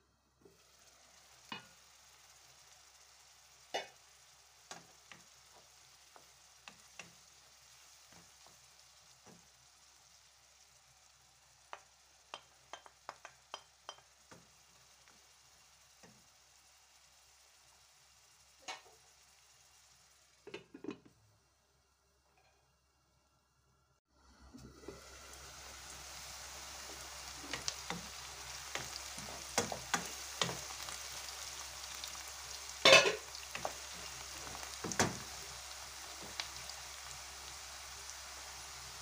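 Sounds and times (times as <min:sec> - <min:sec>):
onions sizzling in a pan: 0:00.4 - 0:23.0, 0:24.2 - 0:39.0
wooden spoon tapping a pan: 0:04.7 - 0:07.3, 0:11.6 - 0:14.6, 0:27.5 - 0:30.9, 0:32.8 - 0:35.4.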